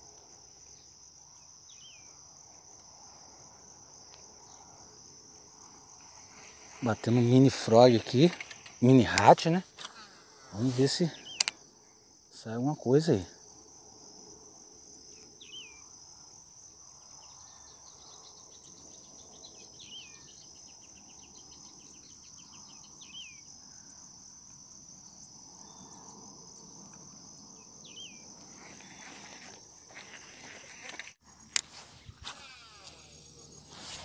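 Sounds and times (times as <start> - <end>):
insects chirping: 0.0 - 34.0
handling noise: 7.0 - 9.9.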